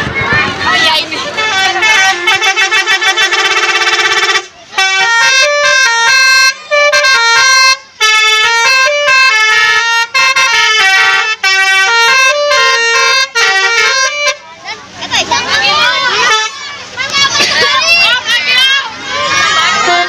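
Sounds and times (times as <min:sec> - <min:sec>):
multi-tone bus horn tune: 0:01.2 - 0:14.4, 0:16.1 - 0:16.7, 0:19.7 - 0:20.0.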